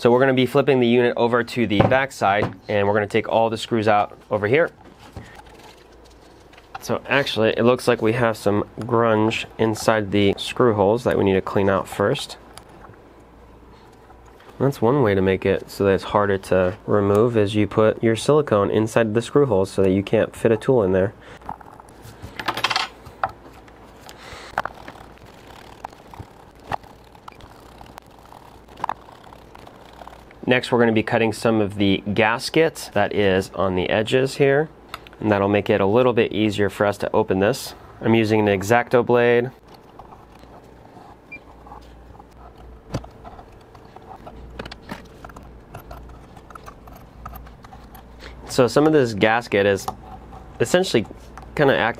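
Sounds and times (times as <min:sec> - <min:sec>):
steady low hum: 0:00.0 - 0:51.9
screwdriver scraping and clicking: 0:39.6 - 0:49.0.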